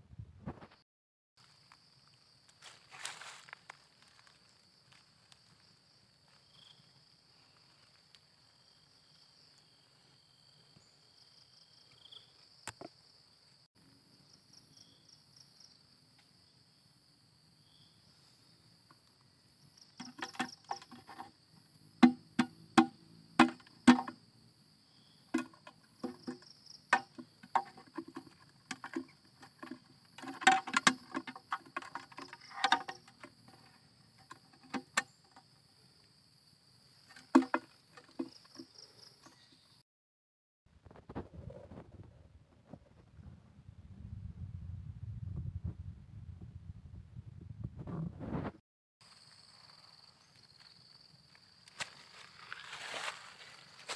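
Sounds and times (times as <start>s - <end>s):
insects chirring: 1.4s - 39.8s, 49.0s - 53.9s
plastic box clicks and knocks: 22.0s - 24.2s, 25.4s - 33.7s, 37.1s - 38.3s.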